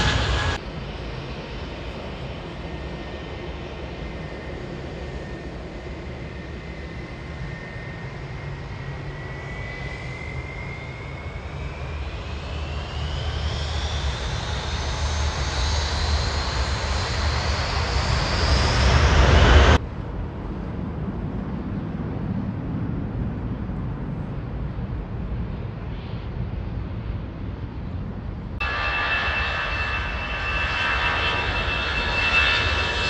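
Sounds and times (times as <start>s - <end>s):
jet engines spooling up: 0.0s - 0.6s, 8.9s - 19.8s, 28.6s - 33.0s.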